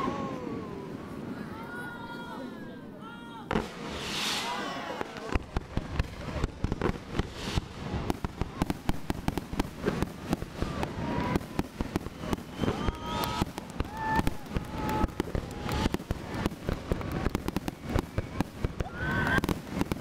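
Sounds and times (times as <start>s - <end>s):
fireworks bangs and crackling: 3.4s - 20.0s
whistle-like tones: 12.0s - 14.2s.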